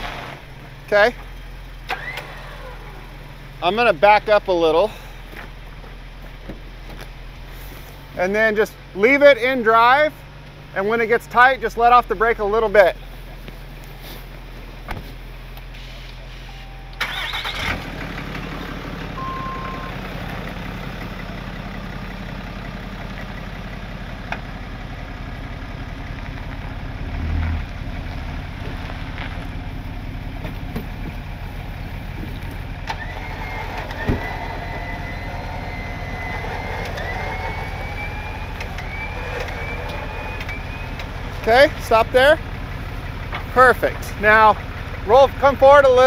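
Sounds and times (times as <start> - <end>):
truck engine idling: 0.0 - 46.0
electric winch running under load: 1.9 - 3.0, 32.9 - 41.4
dull thump: 14.8 - 15.2, 34.0 - 34.4.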